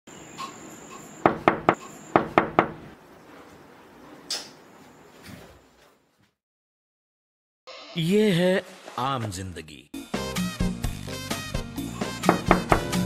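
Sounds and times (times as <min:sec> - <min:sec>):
knocking on wooden door: 0:01.2 - 0:02.8, 0:12.2 - 0:13.0.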